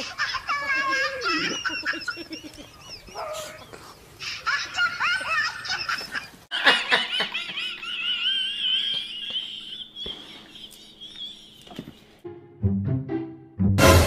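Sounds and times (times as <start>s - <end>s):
woman shrieking with laughter: 0.0s - 3.7s.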